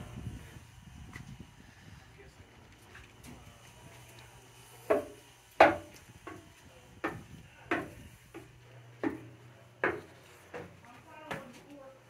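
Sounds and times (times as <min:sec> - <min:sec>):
footsteps on steel ladder: 0:04.9 - 0:11.9.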